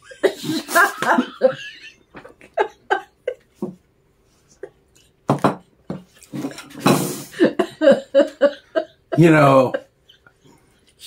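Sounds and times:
woman laughing: 0.0s - 3.6s, 7.3s - 10.2s.

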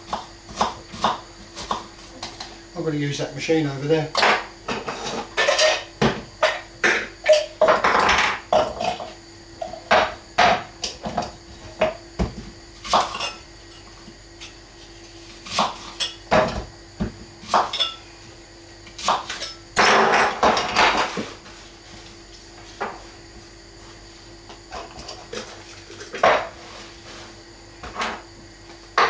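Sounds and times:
kitchen utensils knocking and clinking: 4.2s - 9.0s.

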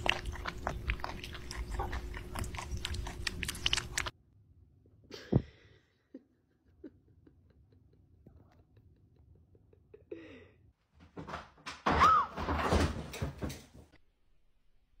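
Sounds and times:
cats lapping milk: 0.0s - 4.1s.

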